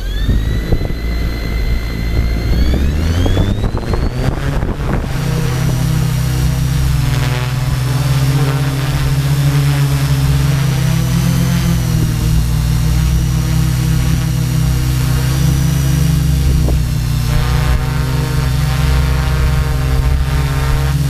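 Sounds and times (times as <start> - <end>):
drone motors whining: 0.0 - 21.0.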